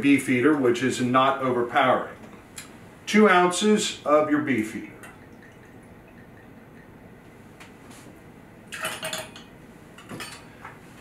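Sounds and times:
metal jigger clinking on shaker: 8.7 - 10.5.

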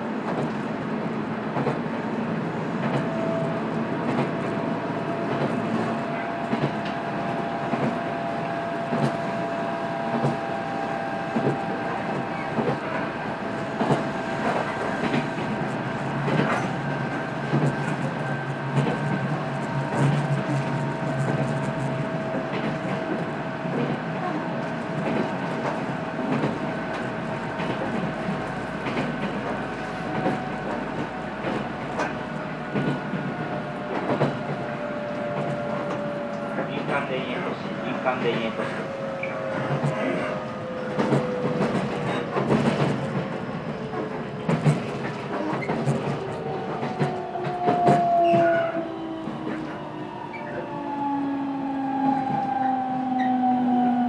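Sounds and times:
train wheels rumbling on rail: 0.0 - 54.0
train clicks: 0.2 - 2.2, 2.8 - 48.6
train motor whine: 45.3 - 54.0.

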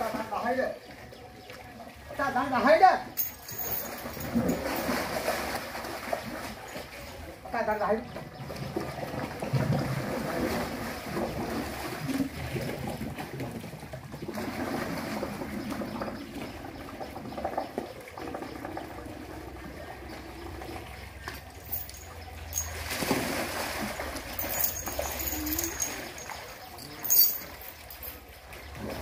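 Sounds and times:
water sloshing and trickling: 0.0 - 29.0
elephant splashing in water: 3.9 - 7.0, 8.4 - 17.6, 21.4 - 26.8.

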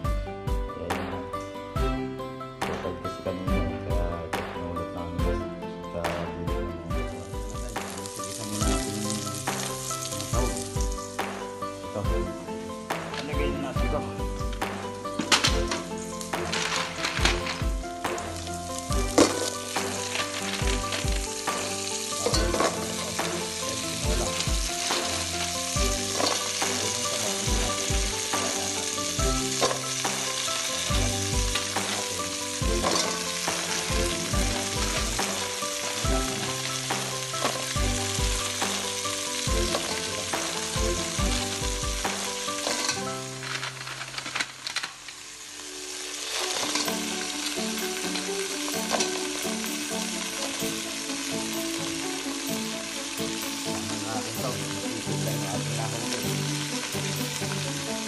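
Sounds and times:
background music with a beat: 0.0 - 43.1, 46.5 - 58.0
shellfish sizzling in a pot: 7.2 - 58.0.

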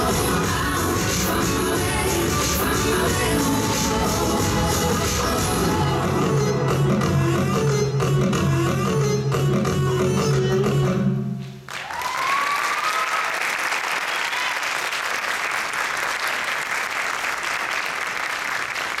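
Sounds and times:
audience applauding: 11.7 - 19.0
audience cheering: 11.8 - 16.6.

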